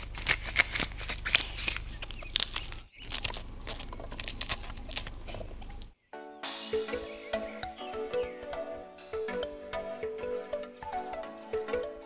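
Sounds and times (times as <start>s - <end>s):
corn kernels cracking: 0.0s - 6.0s.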